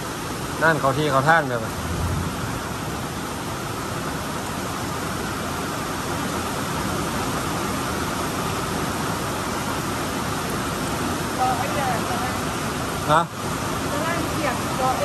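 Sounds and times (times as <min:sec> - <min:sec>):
heavy rain: 0:00.0 - 0:15.0
wind: 0:00.0 - 0:15.0.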